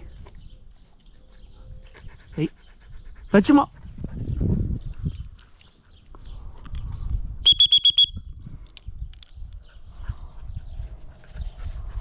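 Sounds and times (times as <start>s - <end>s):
dog whistle high toots: 7.4s - 8.2s.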